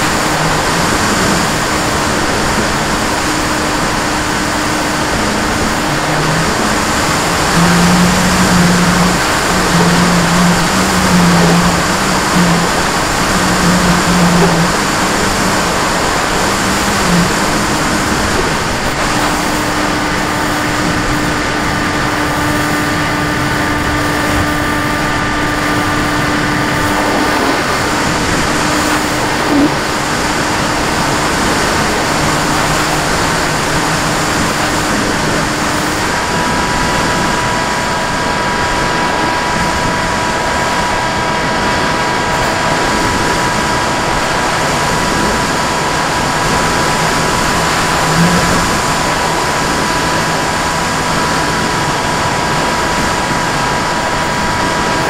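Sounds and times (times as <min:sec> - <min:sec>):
model aircraft motor and propeller: 0:00.0 - 0:55.0
rush of air and water: 0:00.0 - 0:55.0
whining motor tones: 0:00.0 - 0:55.0.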